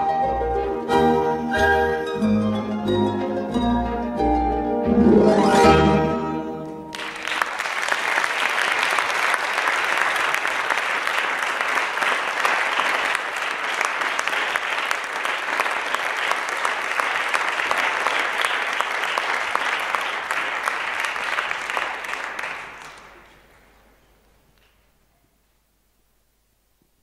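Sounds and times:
ballet music final chord: 0:00.0 - 0:07.0
audience applause: 0:06.9 - 0:23.9.

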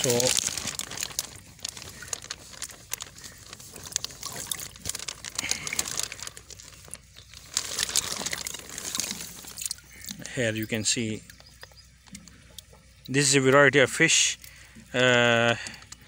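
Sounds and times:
plastic bag crinkling: 0:00.0 - 0:10.8
water sloshing in a bag: 0:00.0 - 0:16.0.

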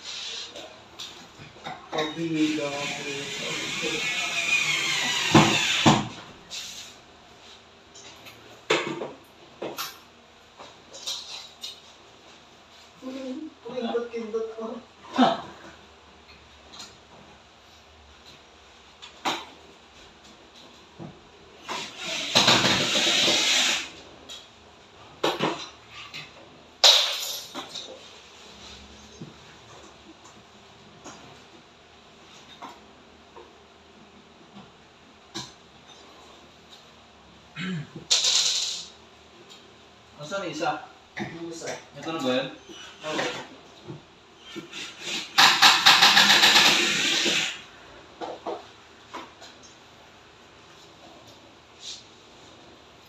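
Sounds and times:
power tool rattling buzz: 0:45.0 - 0:47.6.

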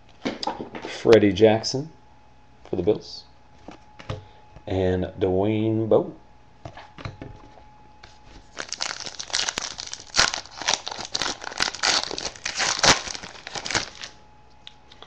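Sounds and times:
wrapper being torn and crinkled: 0:08.5 - 0:14.2.

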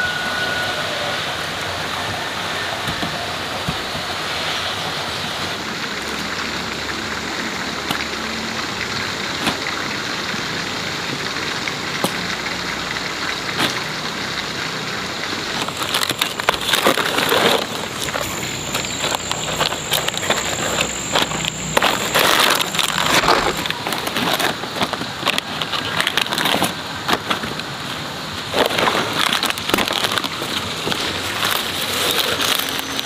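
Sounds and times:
dense rustling and crackling: 0:00.9 - 0:33.0
steady rushing noise: 0:15.3 - 0:25.3.

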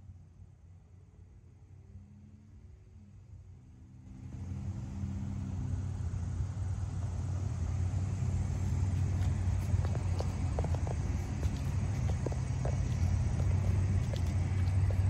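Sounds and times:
low rumble of road traffic: 0:00.0 - 0:15.0.

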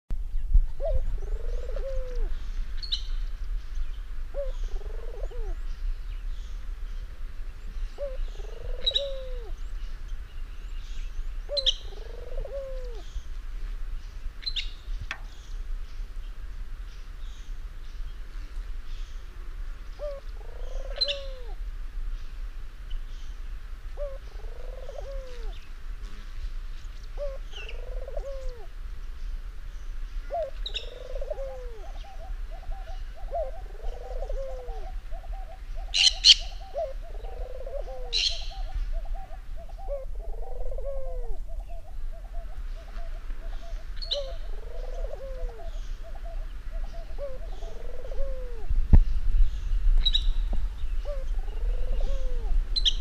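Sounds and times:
dove cooing: 0:00.7 - 0:02.5, 0:04.3 - 0:05.6, 0:07.6 - 0:09.7, 0:11.4 - 0:13.2, 0:19.9 - 0:21.6, 0:23.9 - 0:25.7, 0:27.1 - 0:28.8, 0:30.2 - 0:48.7, 0:50.7 - 0:53.0.

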